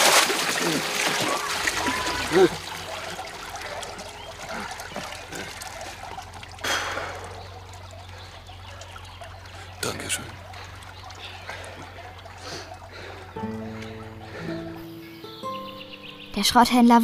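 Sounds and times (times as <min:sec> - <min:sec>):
water trickling and dripping: 0:00.0 - 0:15.6.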